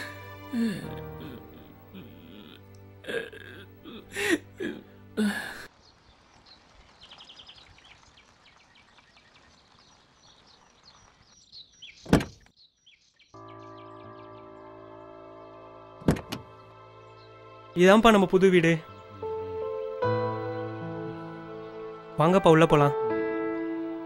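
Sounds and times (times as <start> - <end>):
man sobbing and gasping: 0.0 - 5.7
soft music: 0.0 - 5.7, 13.4 - 24.0
bird chirps: 5.8 - 14.6
car door shutting: 12.1 - 12.4, 16.0 - 16.5
sustained music chord: 13.4 - 24.0.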